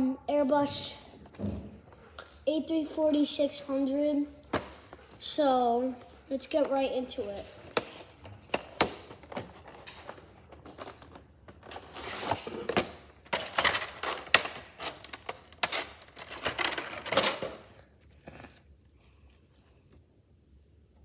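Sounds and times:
cardboard and plastic crinkling: 4.5 - 18.1.

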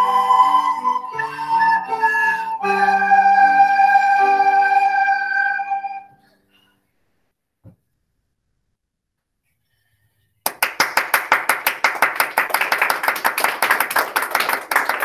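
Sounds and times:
group applauding: 10.4 - 15.0.

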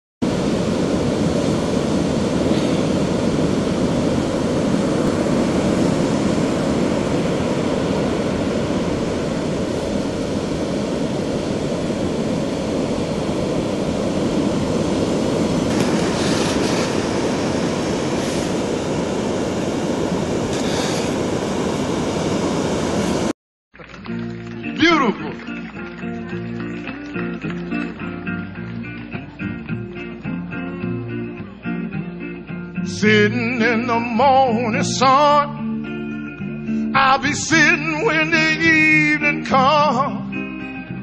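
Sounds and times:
ocean surf breaking: 0.2 - 23.3
toy shovel scraping sand: 15.7 - 17.3, 20.5 - 21.2.

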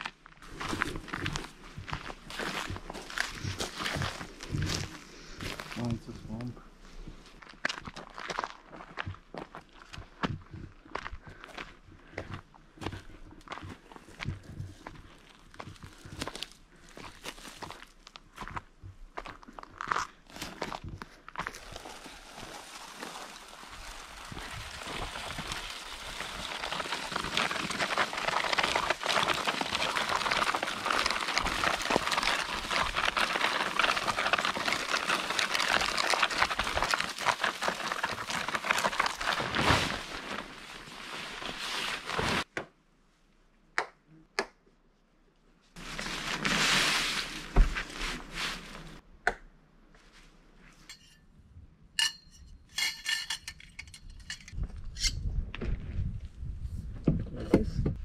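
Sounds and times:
branches scraping over gravel: 0.4 - 5.9, 21.4 - 42.5, 45.8 - 49.0
tarp rustling: 21.4 - 42.5, 45.8 - 49.0.

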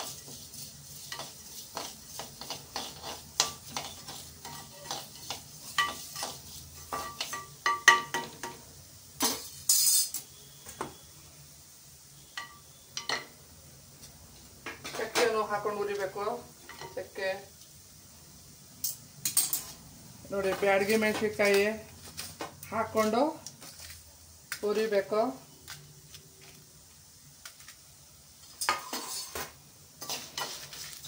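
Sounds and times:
metal spatula scraping a pan: 0.0 - 8.4, 9.2 - 10.5, 18.8 - 22.3, 28.4 - 31.0.

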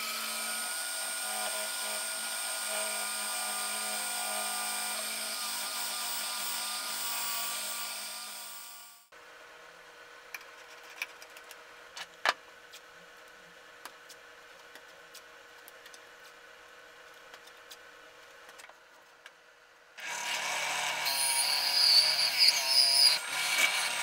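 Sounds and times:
hole saw cutting plywood: 20.0 - 24.0.

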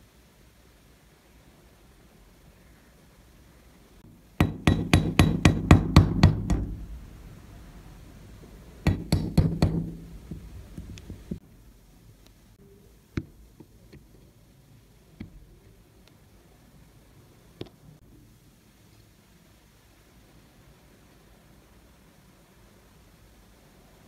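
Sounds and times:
hammer striking metal: 4.4 - 7.0, 8.9 - 10.4.

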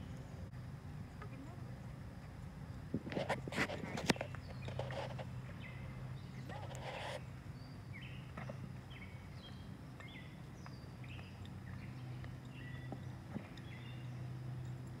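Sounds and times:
steady low hum: 0.0 - 15.0
small birds chirping: 3.6 - 15.0.

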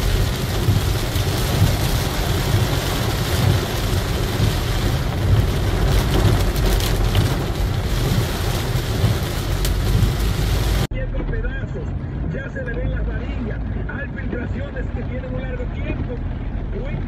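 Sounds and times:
heavy rain on car: 0.0 - 10.9, 11.9 - 17.0
deep rumble of car: 0.0 - 17.0.

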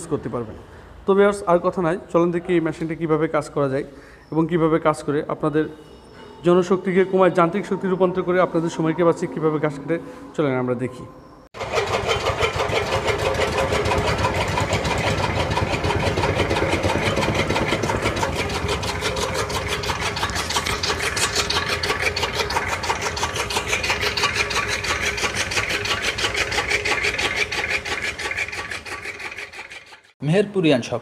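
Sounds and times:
electric motor hum: 11.6 - 29.8
chaff cutter chopping grass: 11.6 - 30.1.

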